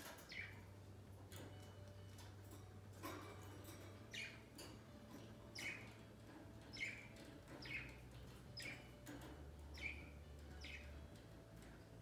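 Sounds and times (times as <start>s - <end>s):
budgerigars chirping: 0.0s - 1.7s, 3.0s - 12.0s.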